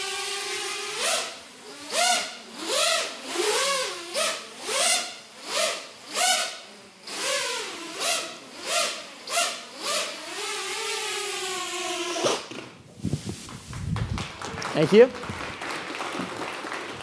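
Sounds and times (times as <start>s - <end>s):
drone motors whining: 0.0s - 12.5s.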